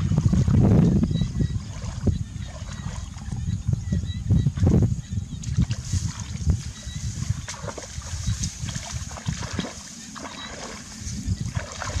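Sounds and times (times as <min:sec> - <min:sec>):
water splashing from wading: 0:05.5 - 0:12.0.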